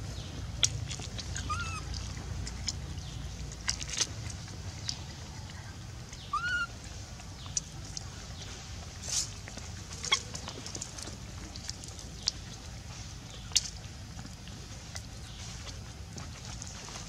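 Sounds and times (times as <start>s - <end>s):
animal calls: 1.2s - 2.0s, 5.1s - 6.8s.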